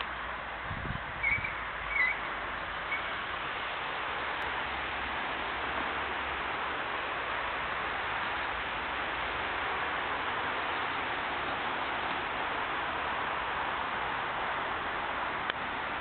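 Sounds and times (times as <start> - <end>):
wind rumbling on microphone: 0.0 - 16.0.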